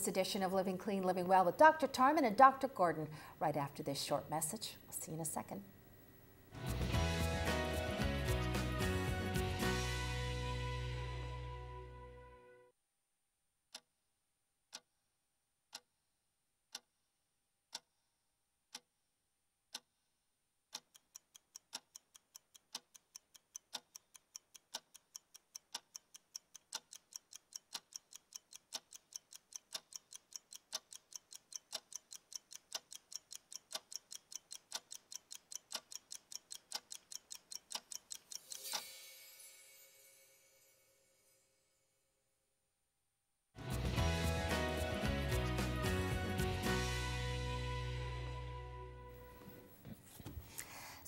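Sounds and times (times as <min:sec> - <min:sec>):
clock ticking: 0:15.7 - 0:15.9, 0:16.7 - 0:16.9, 0:17.7 - 0:18.0, 0:18.7 - 0:18.9, 0:19.7 - 0:20.0, 0:20.7 - 0:38.9.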